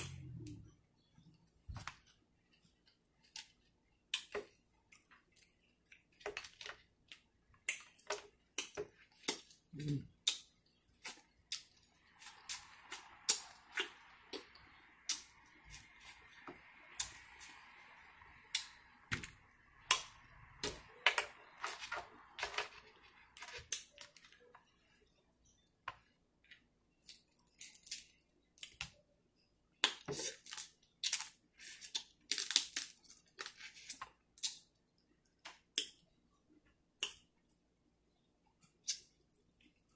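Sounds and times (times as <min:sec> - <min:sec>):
crab shells cracking: 0:29.8 - 0:34.6.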